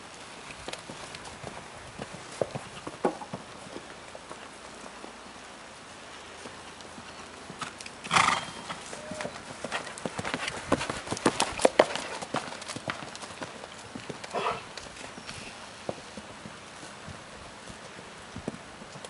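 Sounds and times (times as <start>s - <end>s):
horse hoofbeats on grass: 0.0s - 19.0s
horse snorting: 7.6s - 9.4s, 14.3s - 14.8s.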